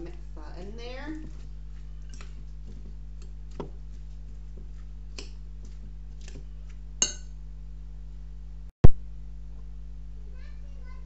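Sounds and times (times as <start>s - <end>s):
utensil clinking against bowl: 7.0s - 7.4s.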